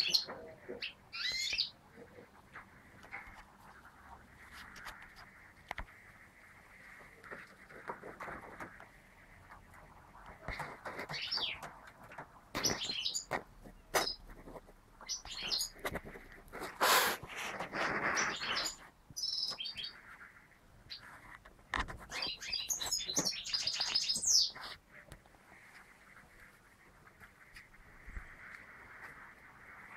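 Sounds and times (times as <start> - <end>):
goldfinches chirping and trilling: 0.0 - 1.8, 12.6 - 13.4, 15.0 - 15.9, 17.9 - 21.1, 22.1 - 24.7.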